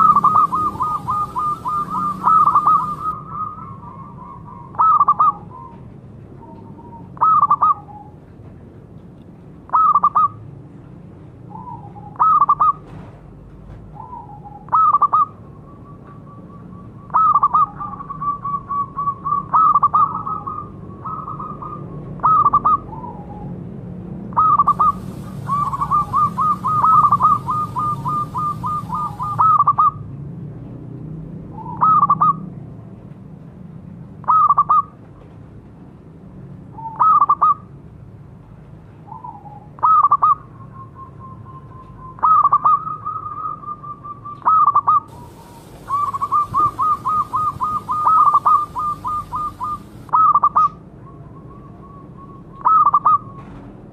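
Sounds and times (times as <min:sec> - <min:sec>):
dove cooing: 0:00.0 - 0:05.6, 0:24.4 - 0:29.7, 0:44.5 - 0:50.7.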